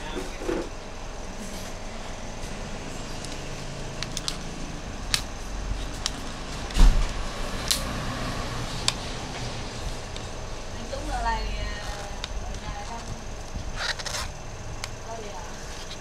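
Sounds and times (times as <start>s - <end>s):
steady background noise: 0.0s - 16.0s
heavier thump: 6.7s - 7.2s.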